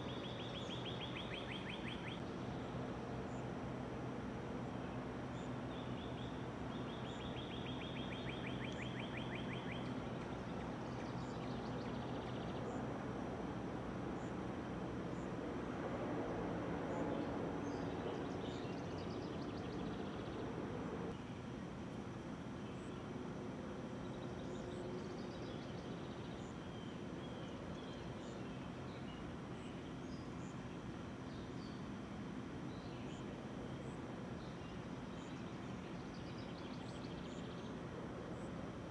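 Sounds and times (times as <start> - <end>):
songbird trilling: 0.0 - 2.2, 5.4 - 12.8
faint high bird chirps: 0.0 - 3.5, 5.3 - 12.8
low outdoor hum: 0.0 - 38.9.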